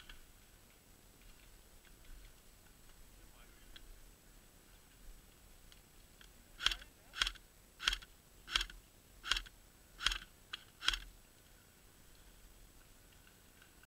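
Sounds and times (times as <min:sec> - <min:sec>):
airsoft rifle shots: 0:06.6 - 0:11.1.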